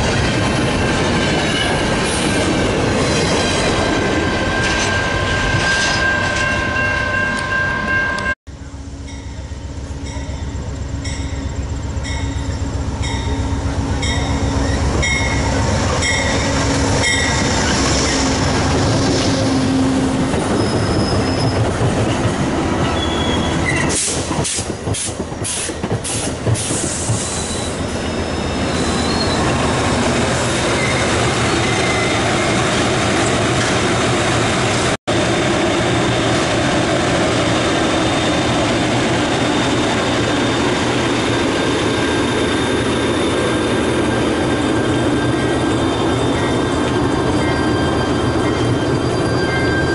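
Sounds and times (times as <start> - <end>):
train coaches rolling rush: 0.0 - 49.9
diesel locomotive rumble: 6.4 - 49.9
high wheel squeal: 10.2 - 21.8, 22.8 - 24.6, 25.5 - 32.7, 39.2 - 49.9.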